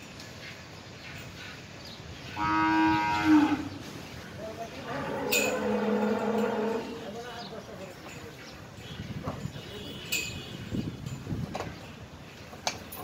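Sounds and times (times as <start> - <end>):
cattle mooing: 2.4 - 3.7, 4.8 - 7.0.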